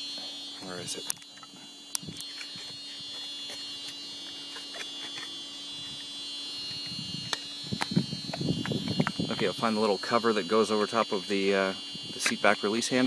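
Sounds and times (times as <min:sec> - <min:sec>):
high-pitched whine: 0:00.0 - 0:13.0
low hum: 0:00.0 - 0:13.0.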